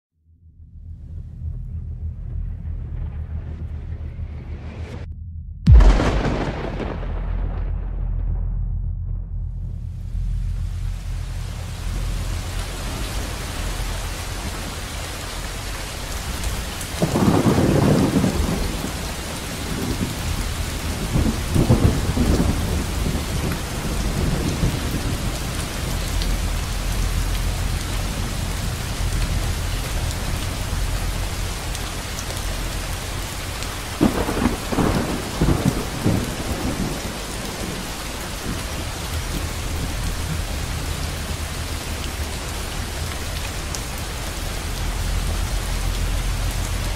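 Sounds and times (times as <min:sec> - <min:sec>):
thunder rolling: 0:01.0 - 0:46.9
steady rain: 0:09.8 - 0:46.9.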